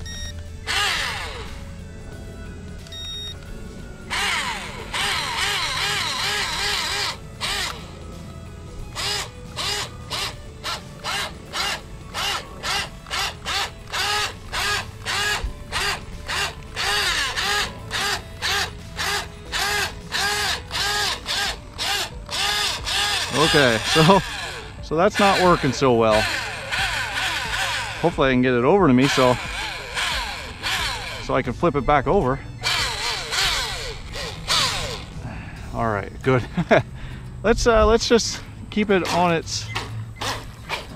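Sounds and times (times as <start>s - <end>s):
small electric motor whining: 0.0s - 35.2s.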